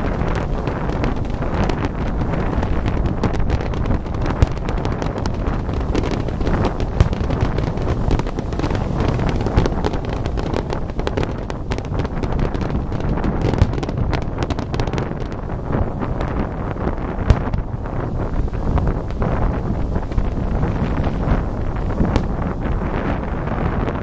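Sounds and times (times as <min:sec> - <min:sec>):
fireworks bursting and crackling: 0:00.0 - 0:24.0
sharp firework bangs: 0:00.0 - 0:24.0
wind buffeting microphone: 0:00.0 - 0:24.0.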